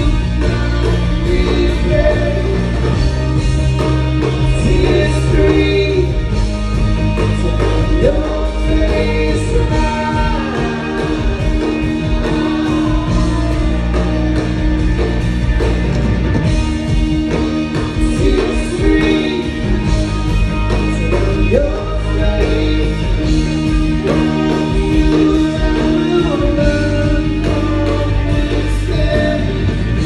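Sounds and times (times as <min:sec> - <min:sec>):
person singing: 0:00.0 - 0:06.5, 0:07.1 - 0:15.2, 0:17.7 - 0:30.0
bass guitar: 0:00.0 - 0:30.0
electric guitar: 0:00.0 - 0:30.0.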